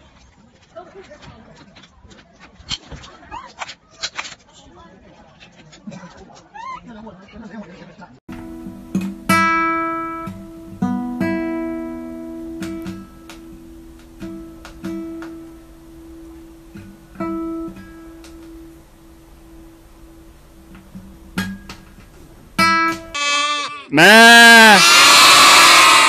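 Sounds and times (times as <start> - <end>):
guitar strings plucked: 8.3 - 23.2.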